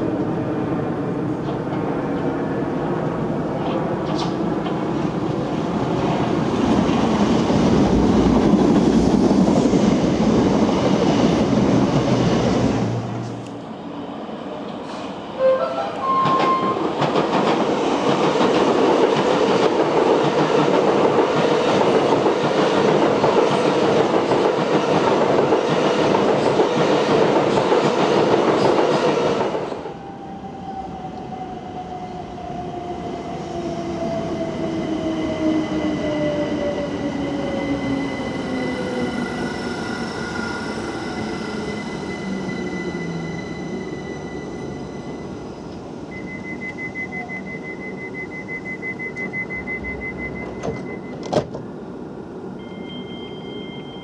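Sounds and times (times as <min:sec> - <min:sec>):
train wheels rushing on rail: 0:01.4 - 0:13.8, 0:16.0 - 0:30.0.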